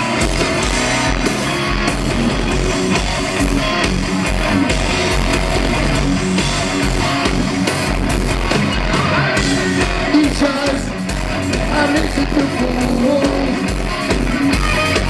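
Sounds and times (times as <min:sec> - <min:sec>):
live heavy metal band: 0:00.0 - 0:15.0
man singing: 0:09.0 - 0:11.0, 0:11.6 - 0:13.7.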